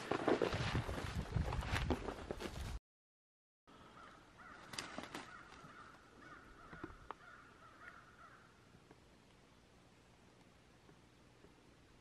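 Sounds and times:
faint animal calls: 3.8 - 8.6.

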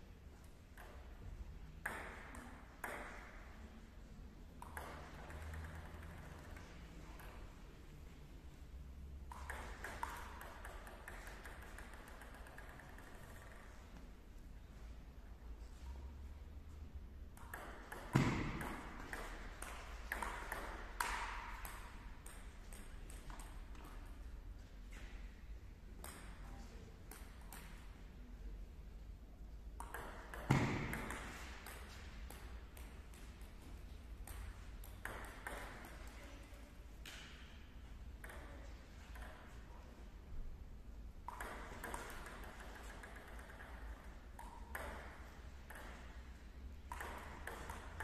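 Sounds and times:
table tennis ball clicking: 1.8 - 3.3, 4.6 - 7.5, 9.3 - 14.0, 17.3 - 24.2, 26.0 - 26.4, 27.1 - 27.9, 29.8 - 36.2, 38.1 - 39.6, 41.2 - 48.0.

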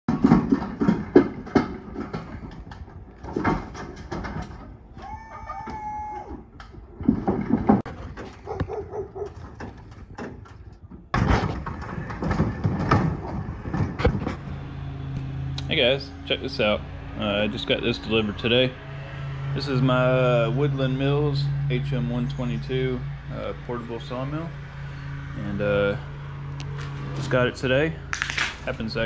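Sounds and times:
pallet jack clunks and rattles: 0.1 - 14.8.

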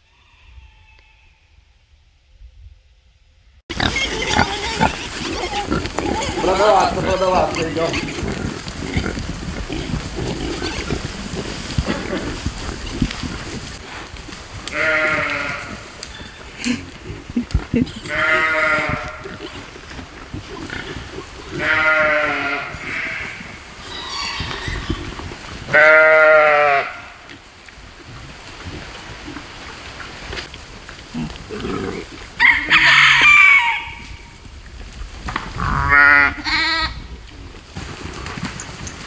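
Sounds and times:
goats and sheep bleating: 3.7 - 13.4, 14.6 - 27.3, 35.5 - 37.1.

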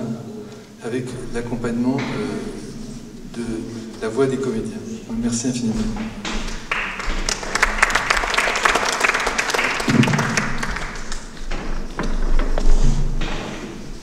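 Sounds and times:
audience applauding: 6.4 - 11.4.

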